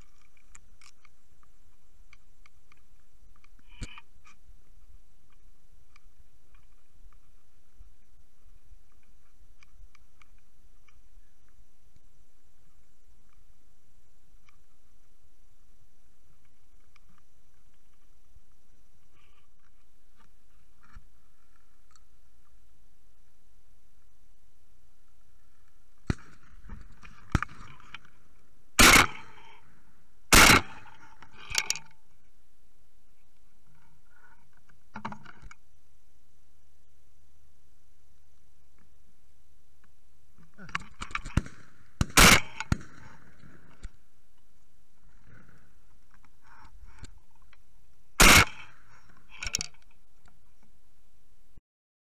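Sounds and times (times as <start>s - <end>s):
gun handling clicks: 28.8s - 29.4s, 48.2s - 48.7s
shotgun shots: 28.8s - 29.5s, 30.3s - 31.0s, 41.2s - 43.7s, 48.2s - 48.8s.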